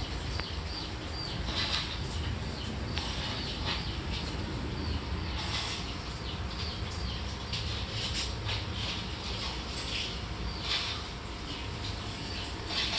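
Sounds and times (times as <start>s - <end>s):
steady low rumble: 0.0s - 12.9s.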